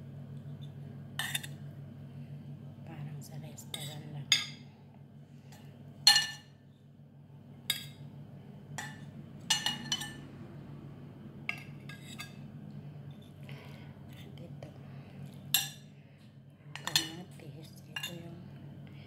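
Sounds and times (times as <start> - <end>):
metal tongs clinking on ceramic plates: 8.8 - 10.2, 15.5 - 15.8, 16.7 - 17.3, 17.9 - 18.3.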